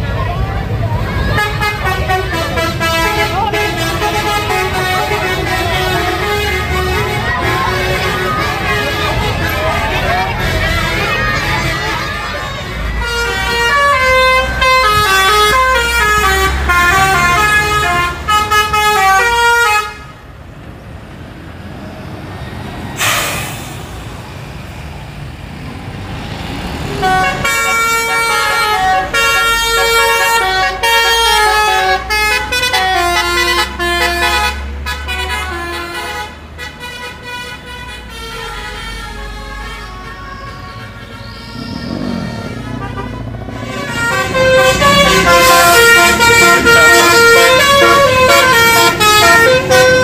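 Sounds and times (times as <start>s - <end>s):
truck engine rumble: 0.0s - 50.0s
multi-note air horn tune: 23.0s - 23.7s, 27.0s - 50.0s.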